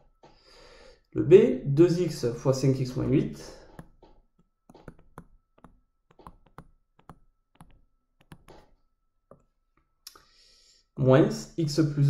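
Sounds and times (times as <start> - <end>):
stylus tapping on tablet: 3.0 - 9.5.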